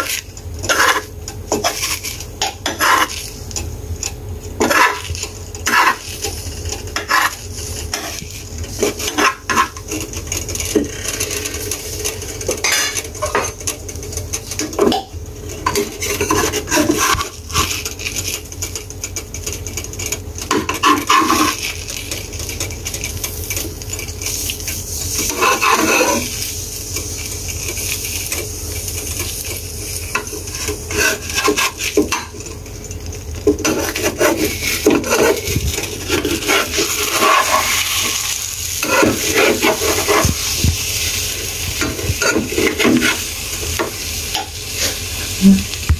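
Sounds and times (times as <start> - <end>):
spatula scraping a frying pan: 0.0 - 45.7
egg sizzling: 0.0 - 45.9.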